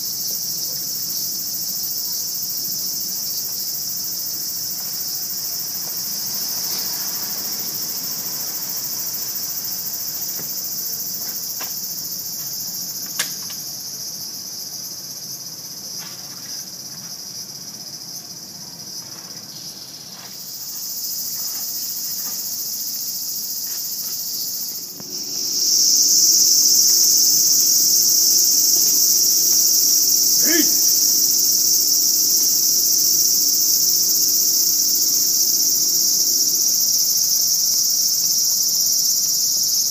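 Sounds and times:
cicadas singing: 0.0 - 39.9
sharp click: 13.1 - 13.6
short pitched cry: 30.4 - 31.0.

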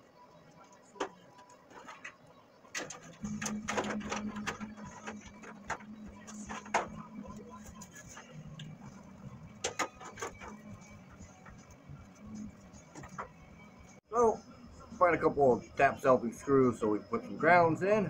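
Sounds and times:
steady low hum: 0.0 - 18.0
hands handling wiring and parts: 0.6 - 13.6.

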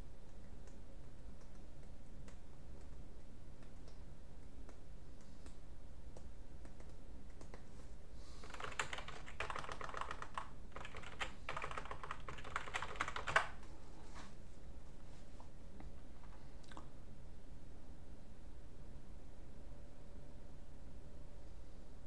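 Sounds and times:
typing on computer keyboard: 6.2 - 7.6, 8.4 - 13.6.

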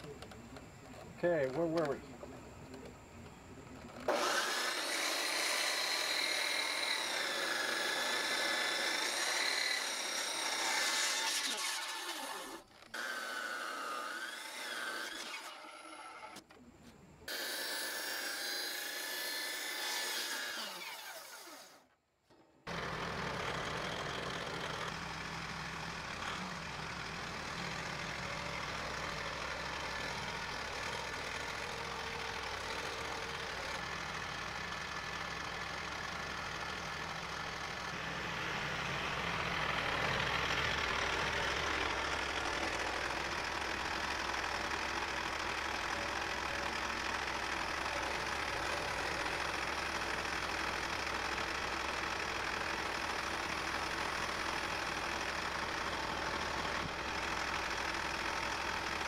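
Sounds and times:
tractor engine running: 0.0 - 4.2, 22.7 - 59.0
circular saw cutting wood: 3.5 - 16.5, 17.2 - 22.0, 22.7 - 59.0.

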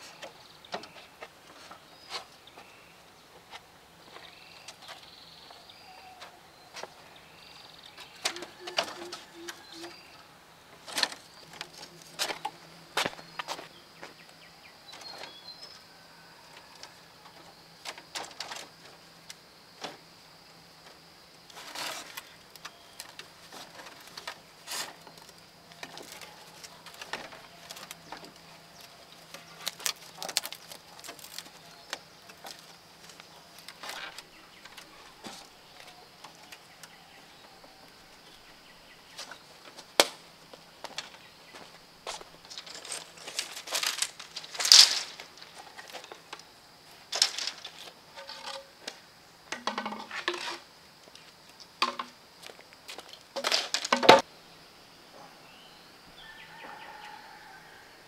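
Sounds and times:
high insect drone: 0.0 - 58.0
bamboo slats clacking: 42.4 - 46.4, 47.1 - 50.6, 51.8 - 52.2, 53.0 - 54.3.

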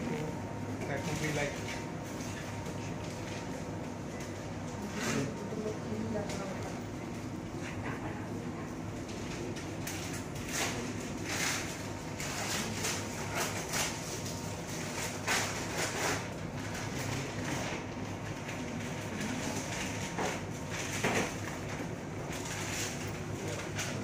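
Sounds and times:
equipment hum: 0.0 - 24.0.

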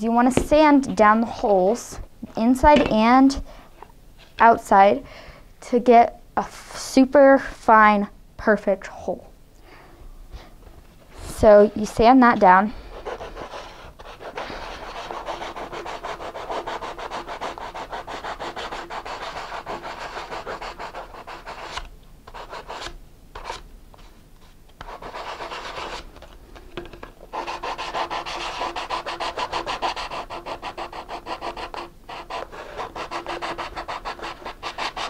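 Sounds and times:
sandpaper rubbing on paper tube: 13.0 - 23.6, 24.9 - 26.0, 27.3 - 35.0.

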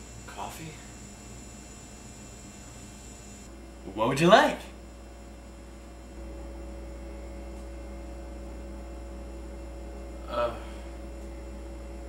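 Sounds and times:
electrical mains hum: 0.0 - 12.0
man's short vocal sound: 10.3 - 10.7.

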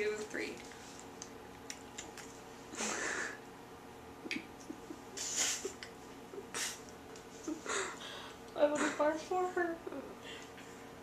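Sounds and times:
faint mouth clicks: 1.2 - 2.4
loud breaths: 7.6 - 8.4.

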